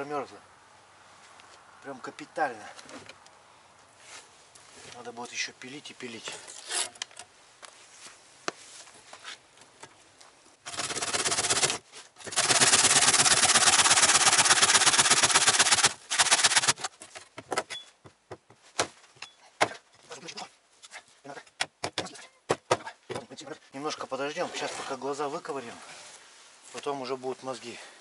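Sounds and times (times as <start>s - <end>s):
hand saw rasping through bone: 10.7s - 16.9s.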